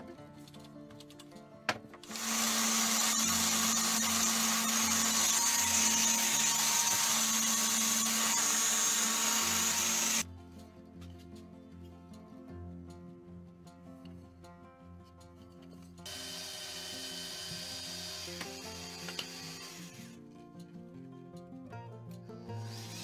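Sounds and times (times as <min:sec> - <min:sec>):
background music: 0:00.0 - 0:23.0
orbital sander whirring: 0:02.1 - 0:10.2, 0:16.1 - 0:20.1.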